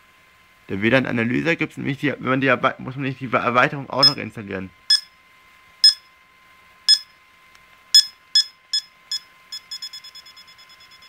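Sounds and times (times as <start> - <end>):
short electronic beeps: 4.9 - 5.1, 5.8 - 6.1, 6.9 - 7.1, 8.0 - 11.0.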